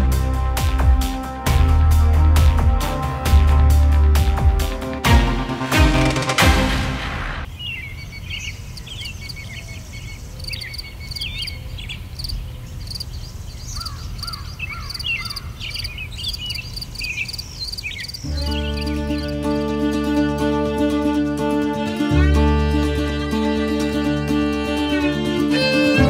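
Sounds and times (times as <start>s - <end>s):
music: 0.0s - 7.5s, 18.3s - 26.0s
birds chirping and calling: 7.5s - 19.7s.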